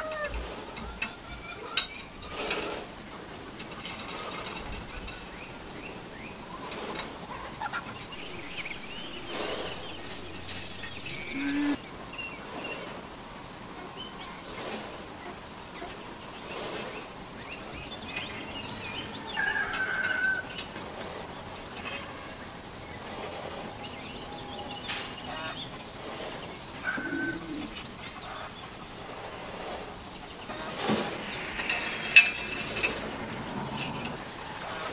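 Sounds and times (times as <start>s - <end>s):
bird chirps: 7.7s - 12.9s
bird cooing: 8.2s - 11.8s, 26.8s - 27.9s.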